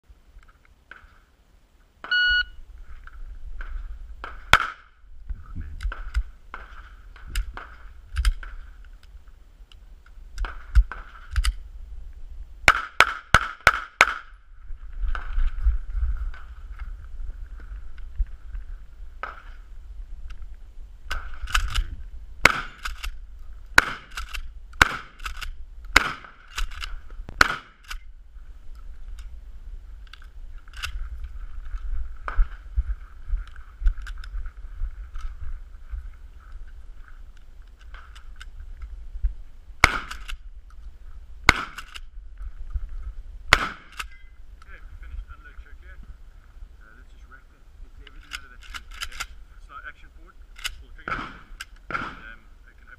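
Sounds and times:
shot timer beep: 0:02.1 - 0:02.6
gunshots: 0:04.2 - 0:04.9, 0:12.7 - 0:14.4, 0:22.4 - 0:23.1, 0:23.8 - 0:26.8, 0:27.4 - 0:28.0, 0:39.8 - 0:40.4, 0:41.5 - 0:42.0, 0:43.5 - 0:44.1, 0:51.0 - 0:52.4
shotgun firing: 0:04.2 - 0:04.9, 0:12.7 - 0:14.4, 0:22.4 - 0:23.1, 0:23.8 - 0:27.9, 0:39.8 - 0:40.4, 0:41.5 - 0:42.0, 0:43.5 - 0:44.1, 0:51.0 - 0:52.4
handling and movement noise: 0:14.6 - 0:46.1.

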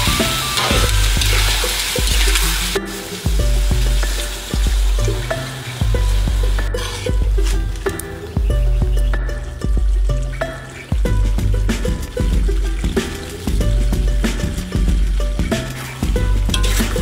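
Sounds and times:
metal spatula scraping wok: 0:00.0 - 0:03.4, 0:06.5 - 0:08.3, 0:15.5 - 0:17.0
background music with bass: 0:00.0 - 0:17.0
eggs sizzling in oil: 0:00.0 - 0:17.0.

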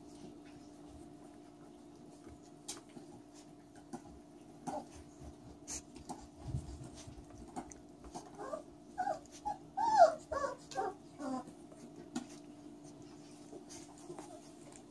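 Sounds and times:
puppy yelping: 0:08.2 - 0:11.5.

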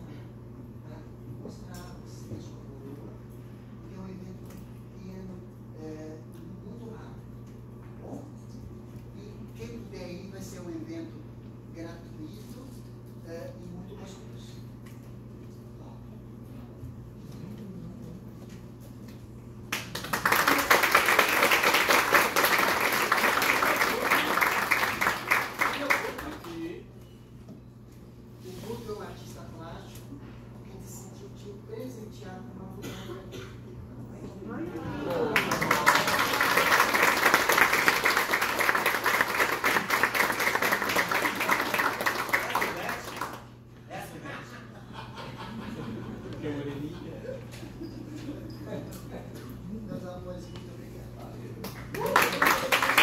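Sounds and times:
audience applause: 0:19.7 - 0:26.5, 0:35.0 - 0:43.4, 0:51.9 - 0:53.0.

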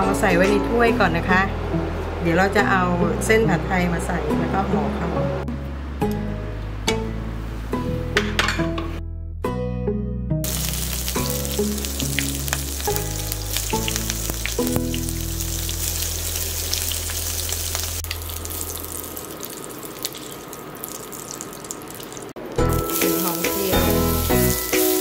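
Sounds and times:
shrimp sizzling in hot oil: 0:10.4 - 0:25.0.

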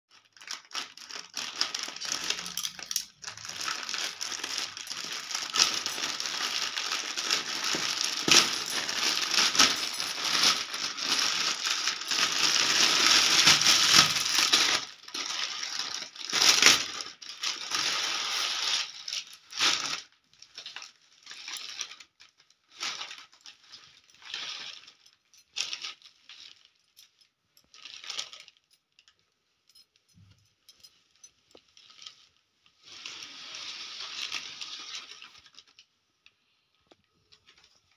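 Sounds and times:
plastic packaging crinkling: 0:00.1 - 0:29.2, 0:30.8 - 0:37.9.

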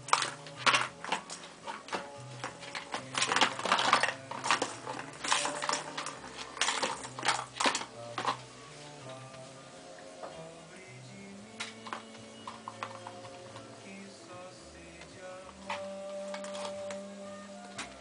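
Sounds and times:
rapid irregular clicks and taps: 0:00.0 - 0:08.4
faint background music: 0:00.0 - 0:18.0.

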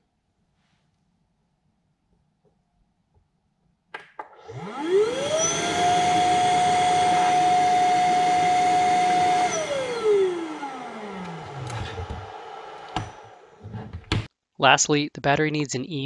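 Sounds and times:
electric pump motor whining: 0:04.3 - 0:13.7.

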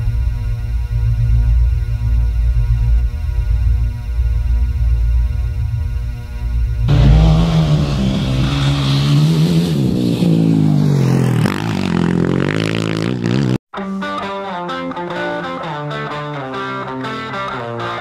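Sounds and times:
dirt bike engine revving: 0:06.8 - 0:13.6
electric guitar music: 0:13.7 - 0:18.0.

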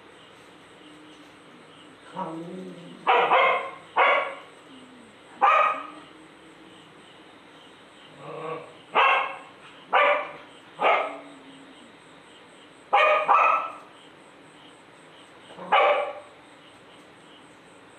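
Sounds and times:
small dog barking: 0:03.0 - 0:04.5, 0:05.4 - 0:06.0, 0:08.9 - 0:11.3, 0:12.9 - 0:13.9, 0:15.6 - 0:16.4.

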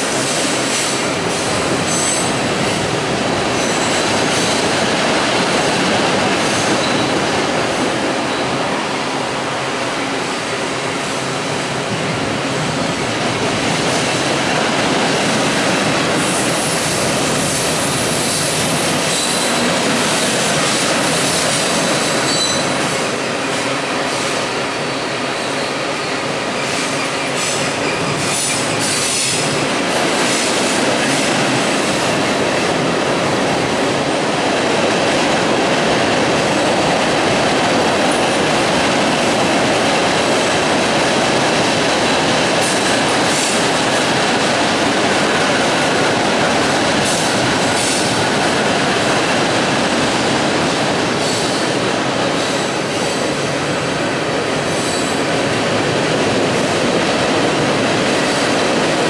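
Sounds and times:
train wheels rumbling on rail: 0:00.0 - 0:59.0
high wheel squeal: 0:22.2 - 0:22.8.

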